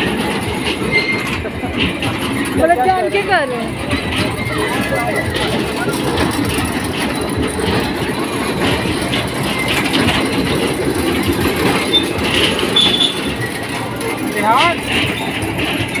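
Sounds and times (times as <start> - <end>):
bumper cars rumbling and clattering: 0.0 - 16.0
high squeaks: 0.1 - 16.0.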